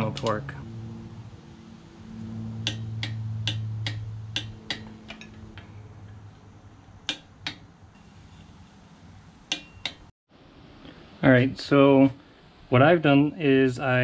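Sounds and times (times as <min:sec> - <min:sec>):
low hum: 0:00.0 - 0:10.6.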